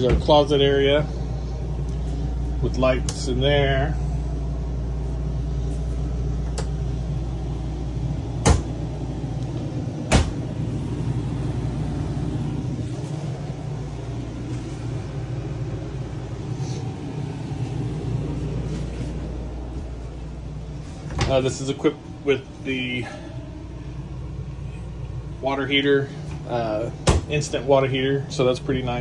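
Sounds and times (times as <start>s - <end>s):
air conditioner humming: 0.0s - 29.0s
sharp knocks: 8.4s - 8.8s.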